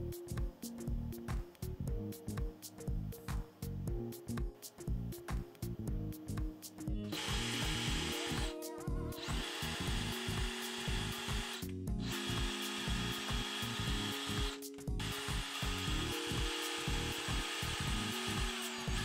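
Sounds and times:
background music with steady beat: 0.0 - 19.0
cordless drill boring plastic: 7.1 - 19.0.

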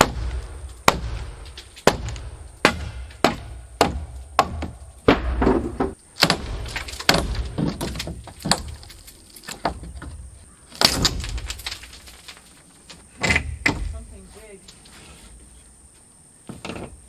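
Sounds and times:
boards scraping and creaking: 4.1 - 17.0.

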